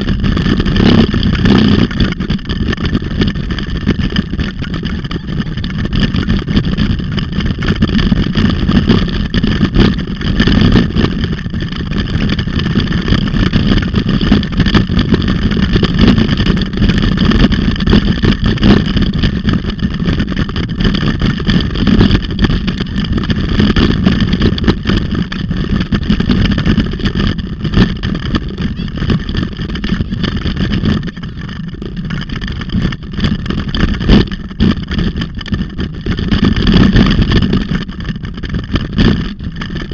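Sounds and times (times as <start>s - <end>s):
bicycle tyres rolling on gravel: 0.0s - 39.9s
wind buffeting microphone: 0.0s - 39.9s.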